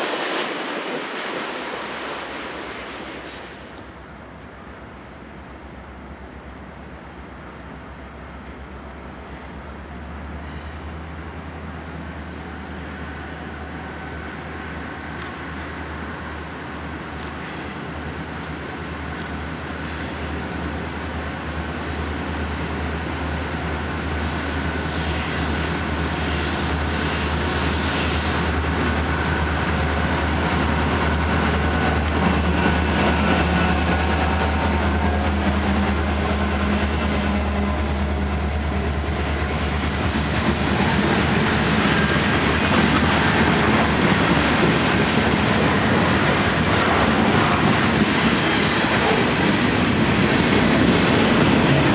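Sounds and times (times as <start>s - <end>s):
freight cars rolling on rails: 0.0s - 4.6s, 11.8s - 51.9s
diesel locomotive engine drone: 1.9s - 51.9s.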